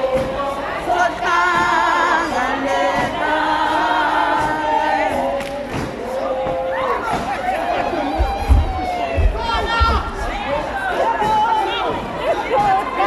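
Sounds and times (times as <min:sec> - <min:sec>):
choir singing: 0:00.0 - 0:13.0.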